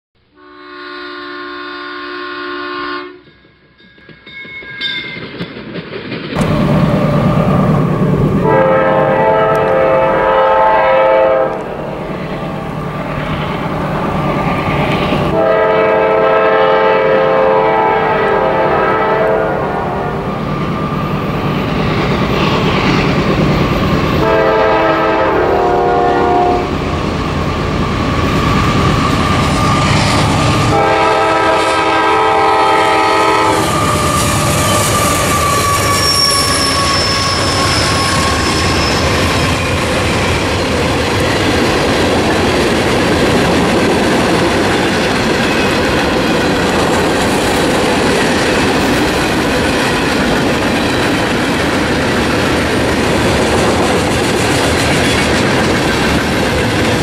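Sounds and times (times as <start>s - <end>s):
train air horn blasts: 0.3s - 3.3s, 6.4s - 12.1s, 15.3s - 20.3s, 24.2s - 26.8s, 29.1s - 39.6s
freight train rumbling past: 0.4s - 57.0s.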